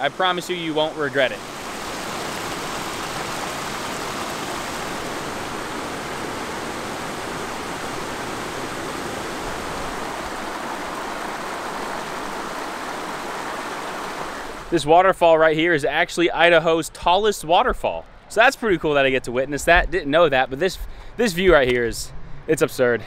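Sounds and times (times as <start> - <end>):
stream and waterfall rushing: 0.0 - 14.9.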